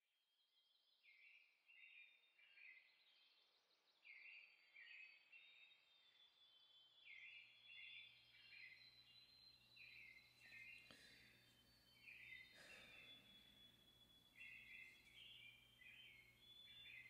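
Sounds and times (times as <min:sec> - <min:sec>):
songbird song: 0:00.1 - 0:17.0
background hiss: 0:08.6 - 0:17.0
low steady hum: 0:08.8 - 0:17.0.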